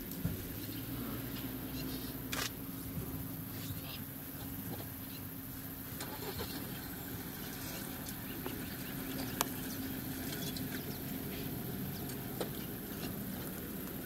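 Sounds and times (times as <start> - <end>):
vehicle engine idling: 0.0 - 14.0
faint ticks and chirps: 3.2 - 14.0.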